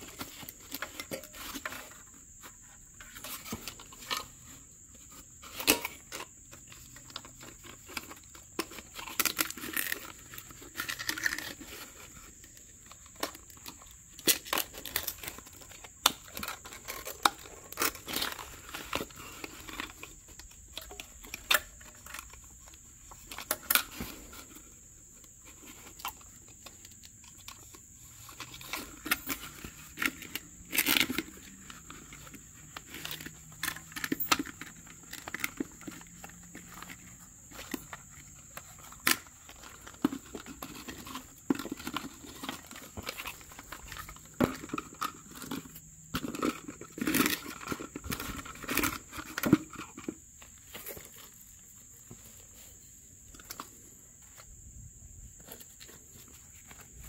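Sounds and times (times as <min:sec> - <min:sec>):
crackling and rustling: 0:00.0 - 0:57.0.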